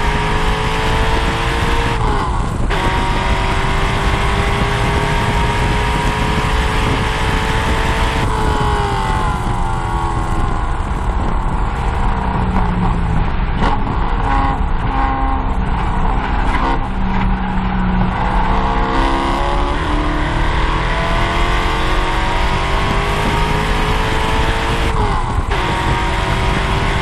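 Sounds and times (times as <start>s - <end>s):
car engine revving under throttle: 0.0s - 27.0s.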